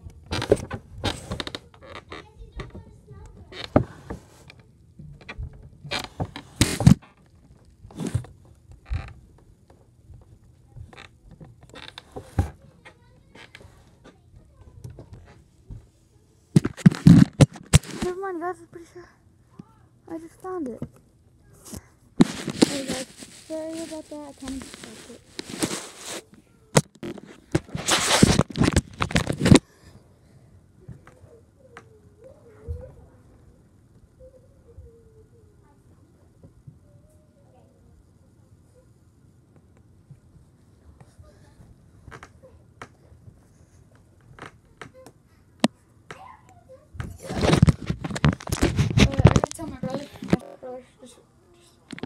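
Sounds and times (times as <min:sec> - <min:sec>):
phone handling rustling and scraping: 0:16.6 - 0:18.1, 0:21.7 - 0:29.6, 0:47.2 - 0:50.5
hand rubbing on carpet: 0:22.2 - 0:26.3, 0:27.6 - 0:28.4.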